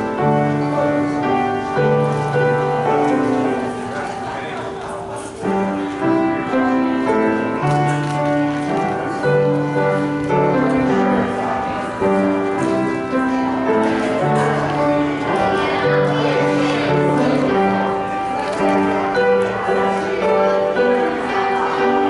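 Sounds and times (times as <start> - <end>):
slow piano piece: 0.0 - 22.0.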